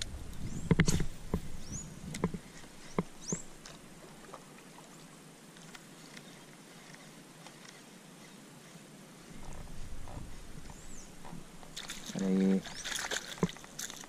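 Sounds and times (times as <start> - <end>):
wind rumble on microphone: 0.0 - 3.5, 9.3 - 12.9
fishing tackle knocks and clicks: 12.8 - 14.0.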